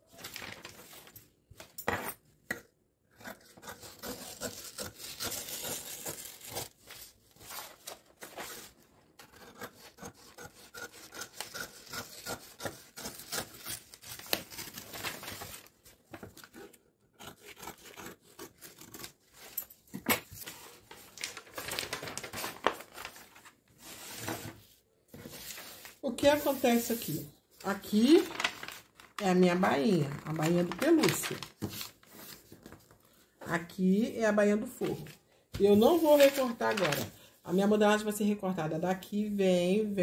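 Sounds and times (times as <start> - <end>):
paper rustling on table: 0.1 - 2.0, 6.5 - 8.8, 14.0 - 16.6, 19.4 - 27.2, 27.9 - 29.2, 30.2 - 33.2, 34.8 - 37.2
scissors snipping paper: 3.2 - 6.8, 9.2 - 20.4.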